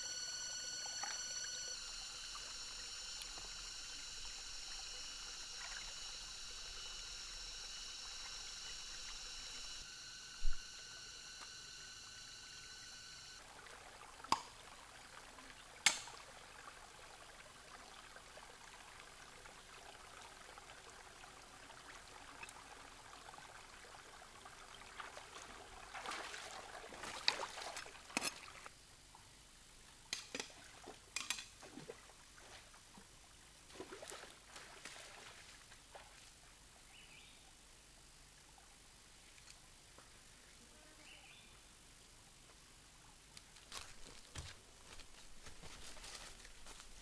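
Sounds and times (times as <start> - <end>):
water splashing: 0.0 - 10.9, 24.8 - 28.7
stream water trickling: 0.0 - 40.4
footsteps on river rocks: 43.5 - 47.0.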